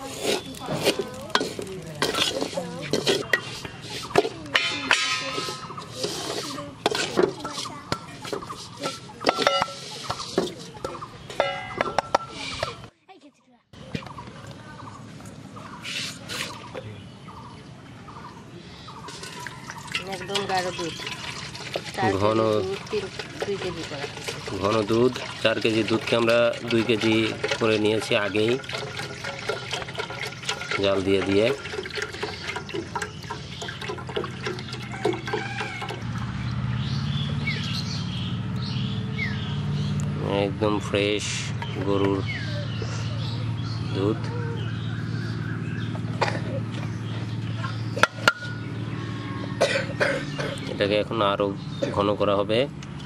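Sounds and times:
bird chirping: 13.8s - 22.2s, 30.1s - 52.2s
milk pouring into metal pot: 19.1s - 36.0s.

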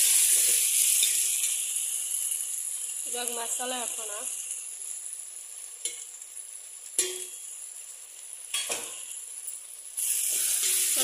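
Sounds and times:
masala sizzling in a pot: 0.0s - 11.0s
steel spoon clinking on pot: 0.4s - 1.7s, 5.8s - 6.1s, 7.0s - 7.4s, 10.3s - 11.0s.

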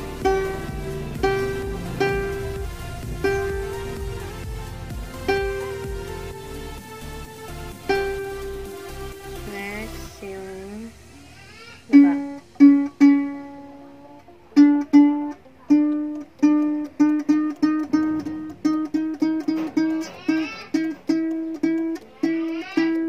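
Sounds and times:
ukulele string plucked: 0.0s - 6.9s, 7.8s - 9.0s, 11.9s - 23.0s.

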